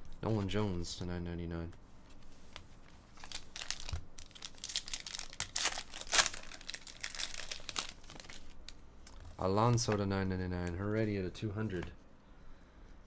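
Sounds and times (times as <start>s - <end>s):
card pack wrapper crinkling and tearing: 3.1s - 9.2s.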